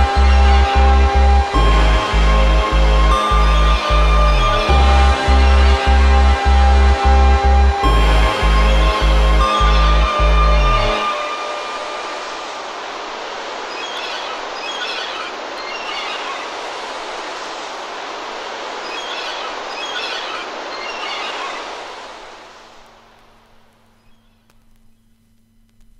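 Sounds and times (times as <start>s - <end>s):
noisy hiss-like wash: 0.0s - 25.9s
high squealing chirps: 13.6s - 16.7s, 18.8s - 21.8s.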